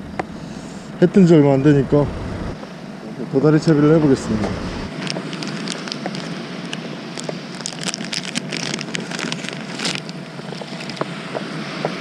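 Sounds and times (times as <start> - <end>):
plastic packaging crinkling: 4.9 - 11.1.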